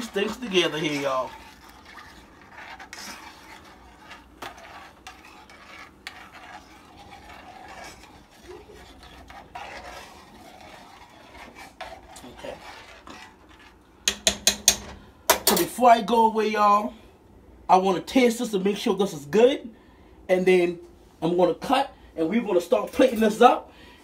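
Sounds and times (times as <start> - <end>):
utensil stirring sauce in pan: 0.0 - 15.4
utensil clicking against pan: 14.1 - 15.6.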